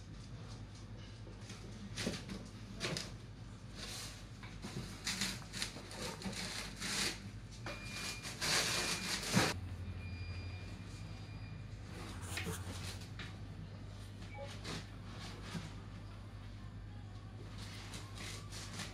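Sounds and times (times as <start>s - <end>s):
cardboard boxes scraping on concrete: 12.0s - 13.0s.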